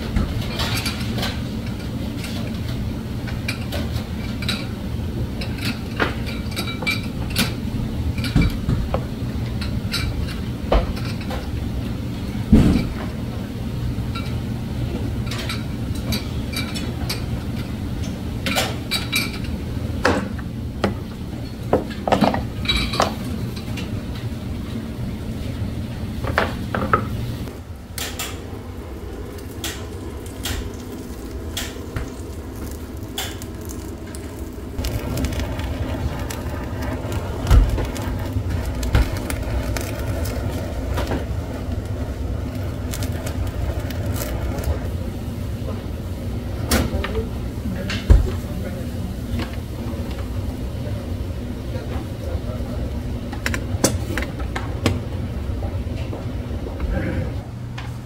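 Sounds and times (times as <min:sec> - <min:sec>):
steady low hum: 0:00.0 - 0:58.0
gas torch hissing: 0:27.4 - 0:46.4.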